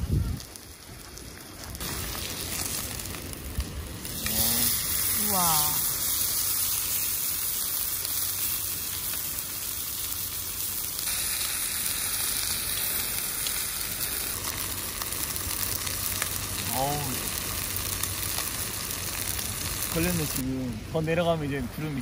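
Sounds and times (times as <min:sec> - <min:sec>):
steak sizzling in a pan: 0:00.1 - 0:20.4.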